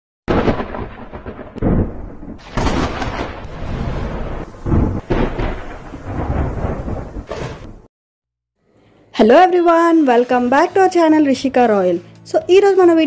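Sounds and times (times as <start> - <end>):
loud booming hits: 0.3 - 7.9.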